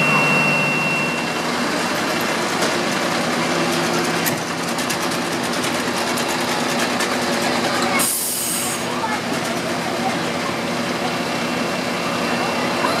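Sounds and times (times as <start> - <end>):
thin high tone: 0.0 - 1.5
fire engine idling: 0.0 - 13.0.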